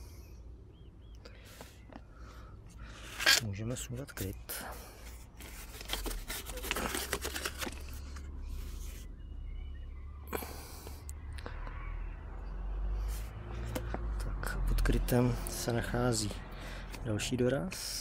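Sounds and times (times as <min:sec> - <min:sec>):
rubber tube scraping metal: 0:02.9 - 0:03.5.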